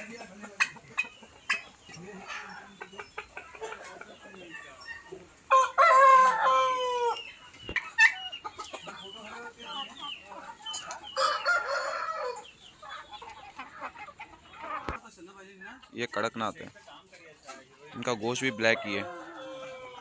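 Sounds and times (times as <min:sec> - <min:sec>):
chickens clucking: 0:00.0 - 0:20.0
rooster crowing: 0:05.5 - 0:07.2, 0:18.4 - 0:20.0.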